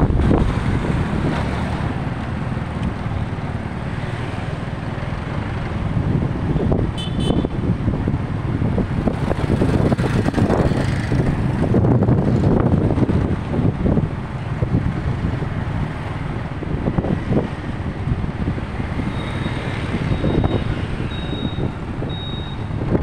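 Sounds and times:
street traffic rumble: 0.0s - 23.0s
wind buffeting microphone: 0.0s - 23.0s
high double beep: 19.1s - 22.7s.

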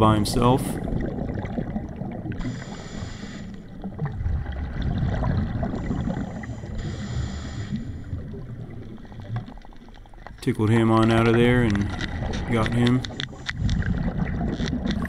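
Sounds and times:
exhaled bubbles rumbling: 0.0s - 15.0s
scuba regulator hissing inhalations: 2.4s - 3.8s, 5.8s - 8.3s.

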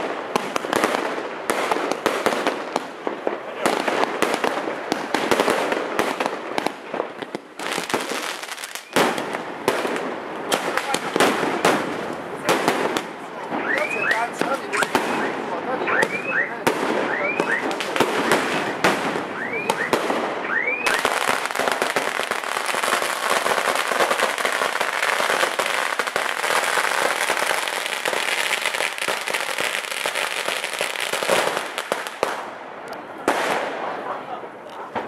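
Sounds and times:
scattered firework pops: 0.0s - 15.4s, 16.0s - 33.8s
firecrackers crackling: 0.0s - 35.0s
firework whistles: 8.6s - 9.2s, 13.6s - 17.9s, 18.5s - 21.4s.

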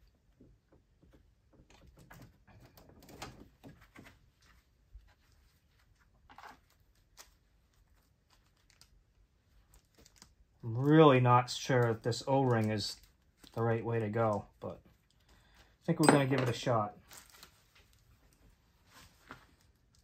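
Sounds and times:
faint rustling of hands: 3.7s - 10.5s, 17.0s - 20.0s.

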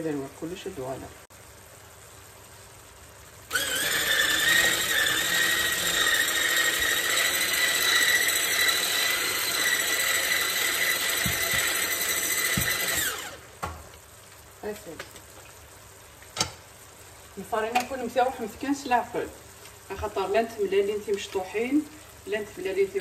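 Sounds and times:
electric hand mixer whining: 3.5s - 13.4s.

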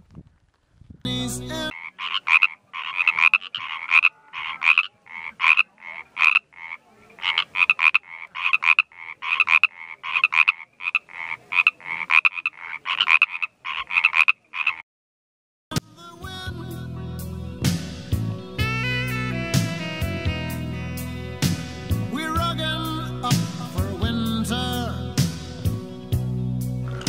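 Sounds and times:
frog croaking: 1.7s - 14.8s.

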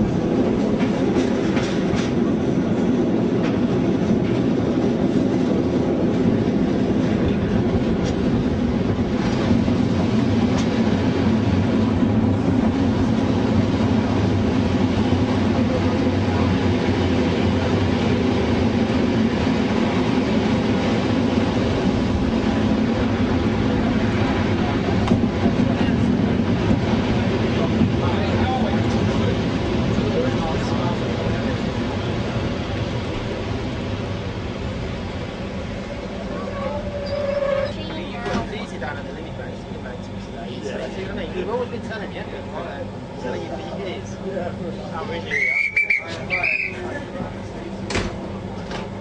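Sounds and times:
clickety-clack over rail joints: 0.0s - 17.0s, 21.3s - 32.4s, 36.0s - 38.8s, 47.2s - 49.0s
train wheels rumbling: 0.0s - 49.0s.

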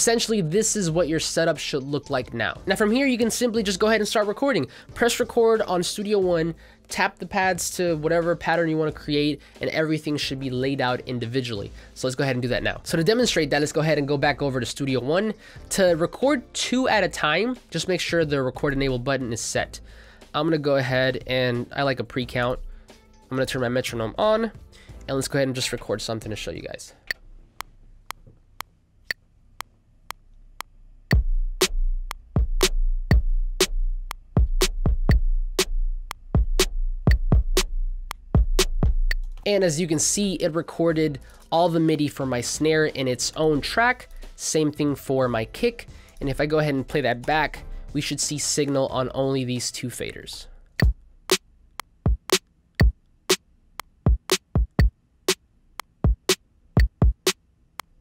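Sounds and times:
kick and snare drum beat: 31.1s - 39.2s, 52.0s - 53.0s, 54.1s - 54.9s, 56.0s - 57.4s
metronome clicking: 36.0s - 37.4s, 38.0s - 39.5s, 51.8s - 52.9s, 53.8s - 58.0s.

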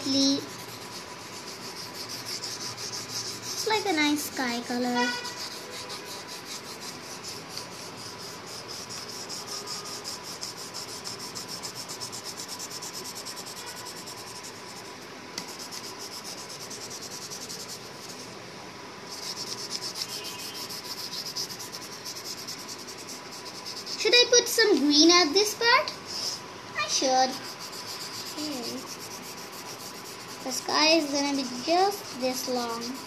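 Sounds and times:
pencil scratching on paper: 0.0s - 18.3s, 19.1s - 24.6s, 26.1s - 33.0s.

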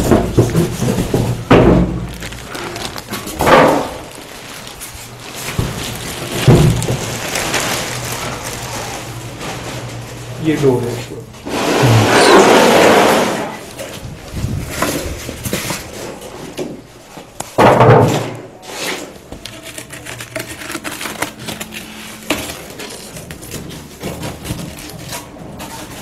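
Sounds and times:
plastic and foam rustling: 0.0s - 26.0s
loud bump: 11.5s - 13.6s.

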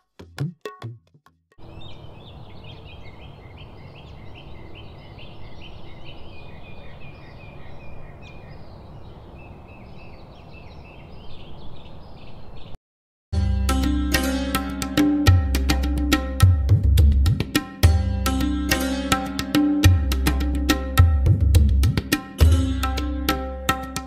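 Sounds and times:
small birds chirping: 1.6s - 12.8s.

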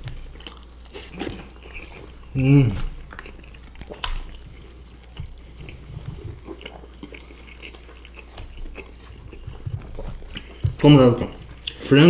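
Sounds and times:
close chewing of food: 0.0s - 12.0s.

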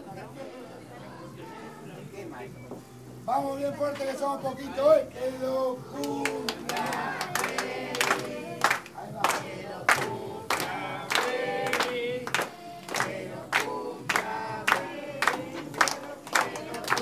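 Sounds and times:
group singing: 0.0s - 2.7s, 4.0s - 17.0s
people clapping: 6.0s - 17.0s.

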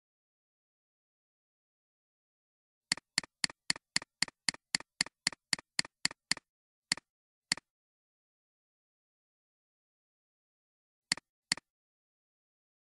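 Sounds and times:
computer mouse button clicking: 11.1s - 11.7s.

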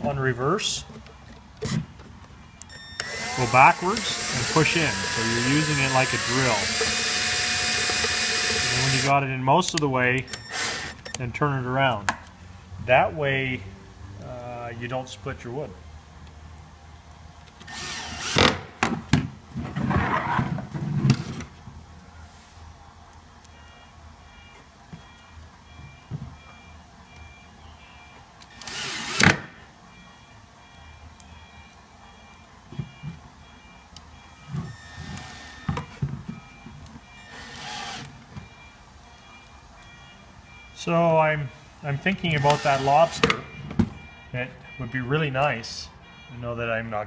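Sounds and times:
cordless drill driving screw: 2.7s - 9.1s, 10.3s - 11.1s, 17.6s - 18.6s, 28.4s - 29.5s, 34.7s - 35.9s, 37.2s - 38.2s, 42.3s - 43.4s.

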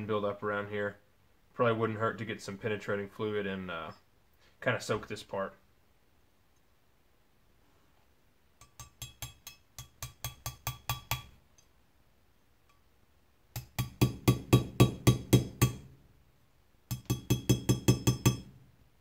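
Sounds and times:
small hammer tapping metal punch: 8.6s - 11.7s, 13.6s - 15.9s, 16.9s - 18.6s.

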